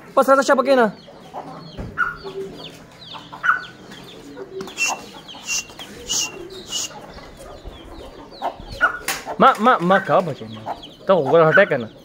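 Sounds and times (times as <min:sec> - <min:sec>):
chickens clucking: 0:00.0 - 0:12.0
chicks peeping: 0:00.1 - 0:12.0.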